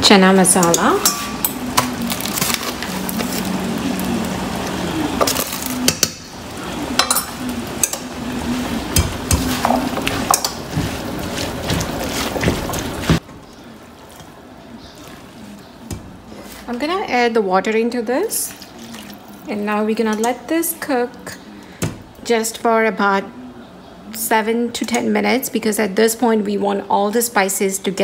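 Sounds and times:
spatula scraping pan: 7.8s - 13.2s.

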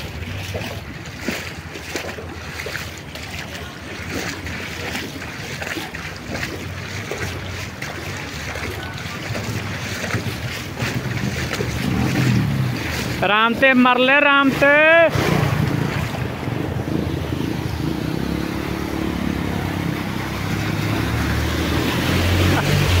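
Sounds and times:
wind buffeting microphone: 0.0s - 13.2s, 15.1s - 18.4s
floodwater rushing across road: 0.0s - 23.0s.

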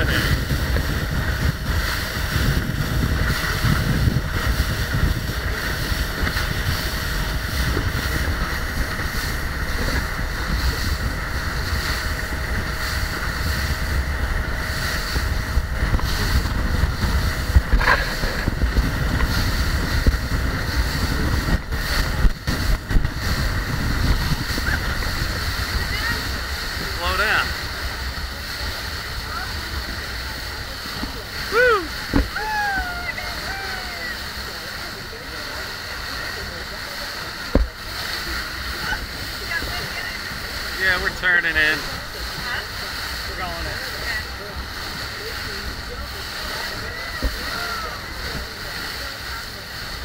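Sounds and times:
boat engine drone: 0.0s - 50.0s
water rushing past hull: 0.0s - 50.0s
wind over microphone: 0.0s - 50.0s.

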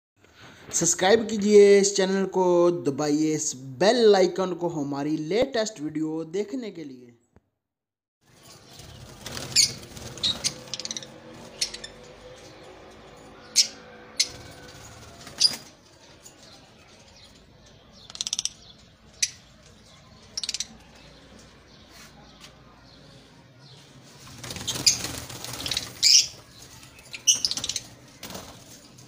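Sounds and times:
lovebirds chirping: 8.3s - 29.0s.

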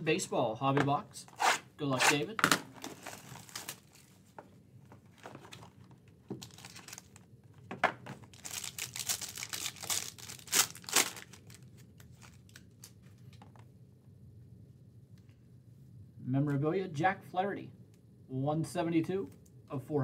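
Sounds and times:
foil wrapper crinkling and tearing: 2.8s - 4.2s, 6.4s - 7.3s, 8.2s - 13.0s.

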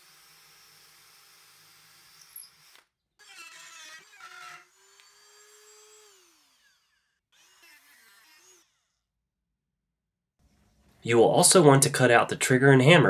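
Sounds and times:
rotary tool cutting wood: 0.0s - 9.1s.

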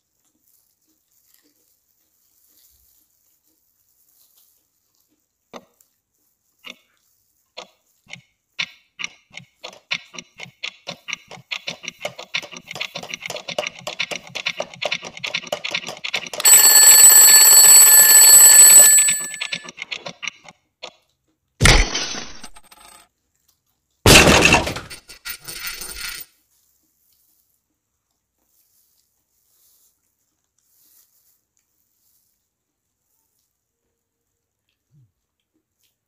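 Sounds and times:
fast regular ticking: 7.6s - 20.5s
ringing alarm bell: 16.4s - 19.7s.

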